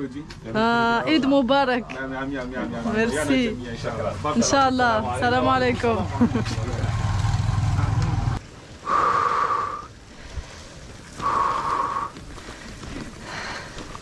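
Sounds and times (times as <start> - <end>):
person breathing: 8.8 - 14.0.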